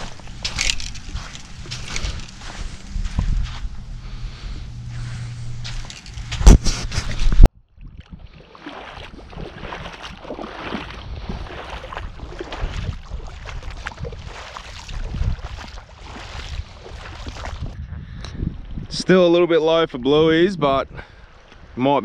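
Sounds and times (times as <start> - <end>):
footsteps sloshing through water: 0.0 - 17.8, 21.2 - 21.8
wind rumbling on microphone: 0.0 - 21.8.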